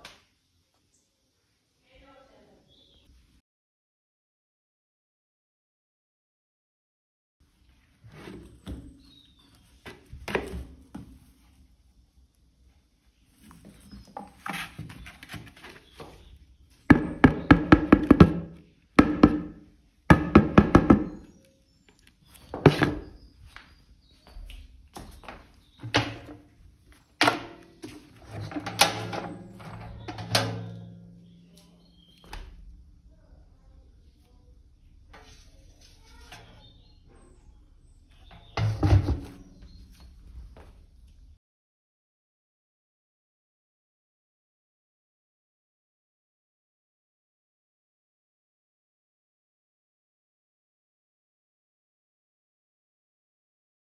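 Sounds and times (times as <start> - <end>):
faint rustling and scraping: 12.6 - 16.9, 34.1 - 40.8
plastic bucket hollow thuds: 16.9 - 21.2, 22.6 - 23.2, 27.2 - 31.1, 38.3 - 39.8
plastic knocking onto metal drum: 16.9 - 21.2.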